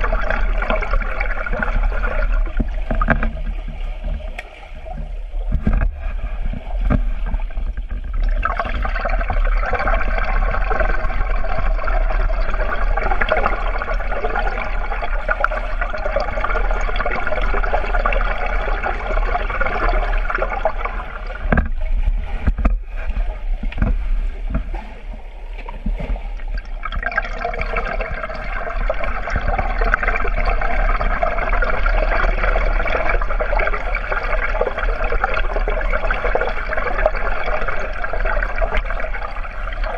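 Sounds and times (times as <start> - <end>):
water rushing underwater: 0.0 - 39.9.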